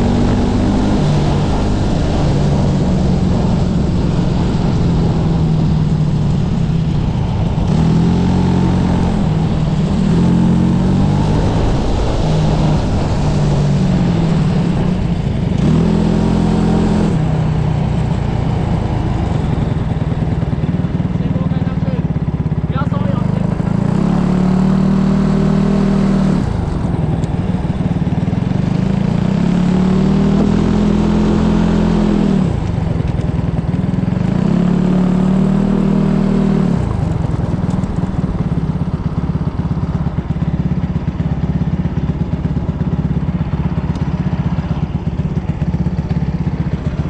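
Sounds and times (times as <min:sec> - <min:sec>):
racing kart engine: 0:00.0 - 0:47.0.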